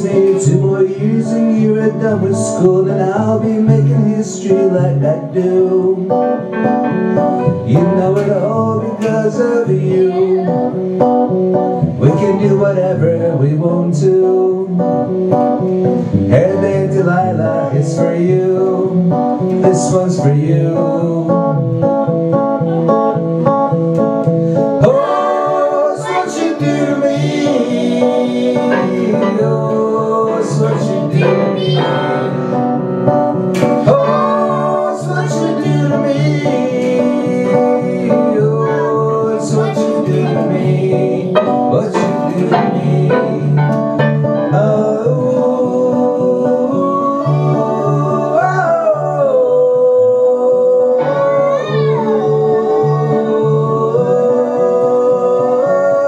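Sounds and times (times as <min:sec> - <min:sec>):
acoustic guitar playing: 0:00.0 - 0:56.0
electronic keyboard chords: 0:04.6 - 0:12.6, 0:14.6 - 0:18.1, 0:18.8 - 0:48.3.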